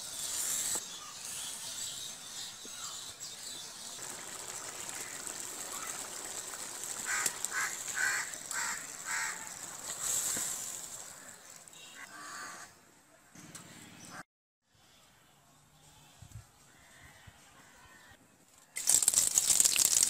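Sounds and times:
curry sizzling in a pan: 0.0 - 11.3.

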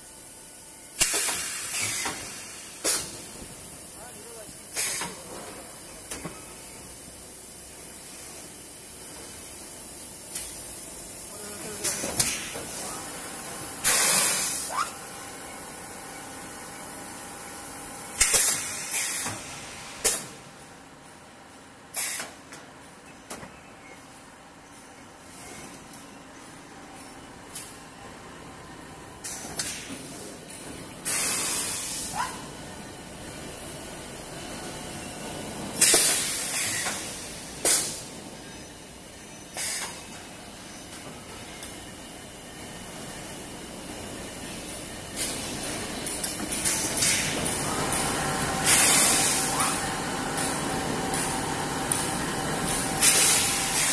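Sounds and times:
compressed air hiss bursts: 1.0 - 3.9, 4.7 - 5.2, 13.8 - 14.9, 18.2 - 20.4, 21.9 - 22.4, 31.0 - 32.2, 35.8 - 38.1, 46.6 - 53.9
machine hum: 41.9 - 53.9.

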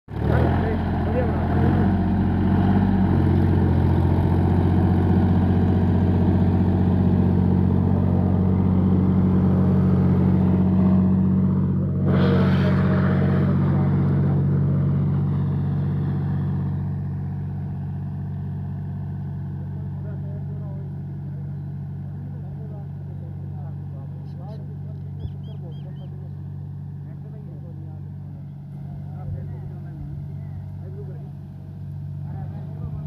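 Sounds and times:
harrow scraping rush: 0.1 - 18.3
tractor diesel engine running: 0.1 - 33.0.

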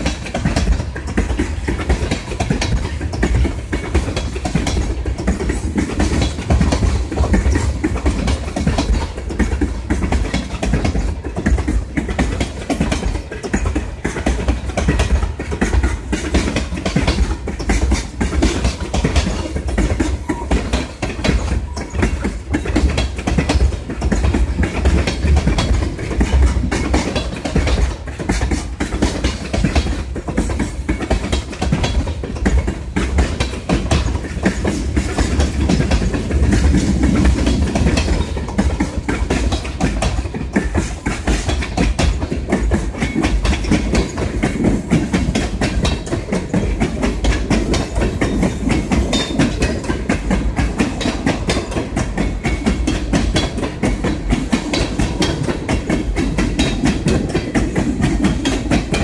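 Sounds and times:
freight train rumbling past: 0.0 - 10.4
wheels clicking over rail joints: 0.0 - 59.0.

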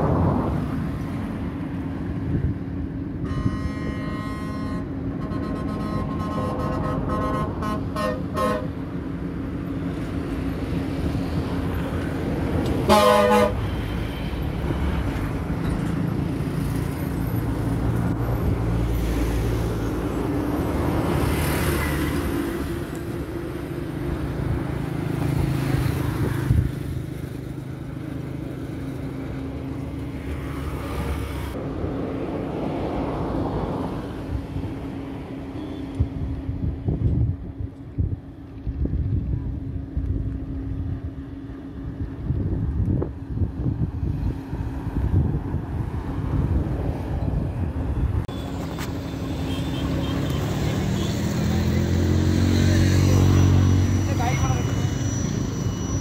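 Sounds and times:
diesel locomotive engine rumble: 0.0 - 56.0
locomotive horn: 3.2 - 9.0, 12.8 - 13.8, 48.3 - 56.0.

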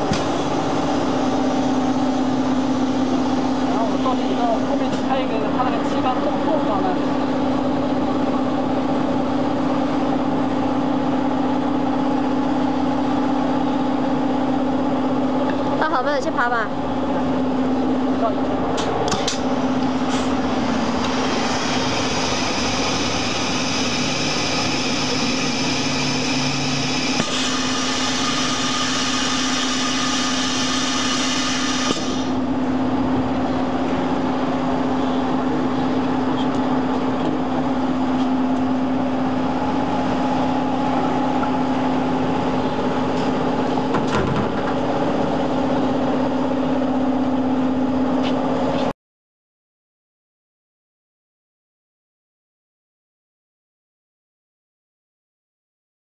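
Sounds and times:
machine hum with low drone: 0.0 - 48.9
high-pitched whine: 19.5 - 43.9.

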